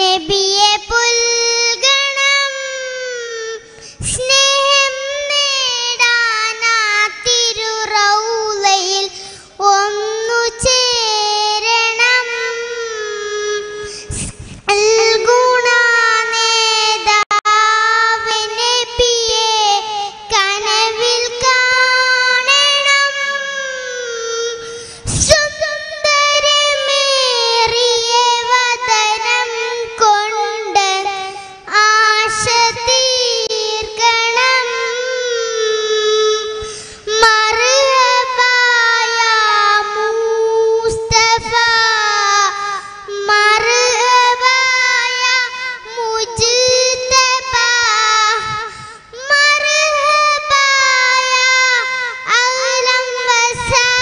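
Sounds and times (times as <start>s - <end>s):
girl singing into a microphone: 0.0s - 54.0s.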